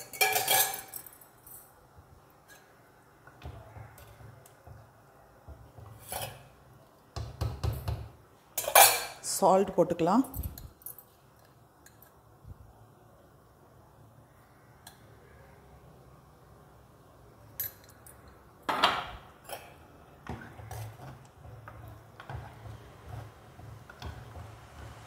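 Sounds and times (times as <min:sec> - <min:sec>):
utensils clinking on clay pot: 0:00.0 - 0:01.8, 0:08.6 - 0:09.4, 0:17.5 - 0:25.0.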